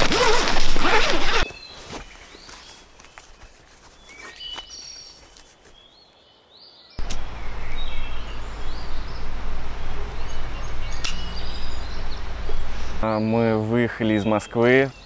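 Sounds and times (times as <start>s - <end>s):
small birds chirping: 0.0s - 15.0s
sharp click: 7.0s - 7.3s, 11.0s - 11.3s.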